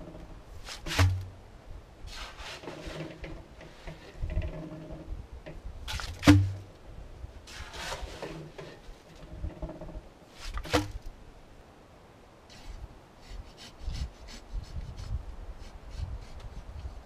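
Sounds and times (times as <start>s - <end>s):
scraping wet concrete: 0.6s - 1.3s, 2.1s - 4.2s, 7.5s - 8.8s.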